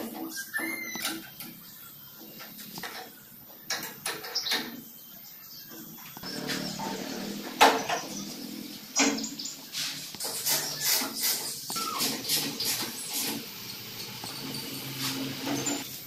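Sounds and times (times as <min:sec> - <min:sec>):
short squeak: 0:00.2 - 0:01.4, 0:10.3 - 0:13.2.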